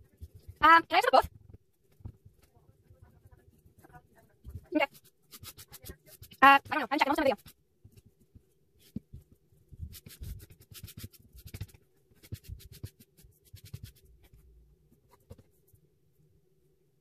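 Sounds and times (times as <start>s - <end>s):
eraser rubbing on paper: 4.6s - 7.5s, 9.8s - 14.1s.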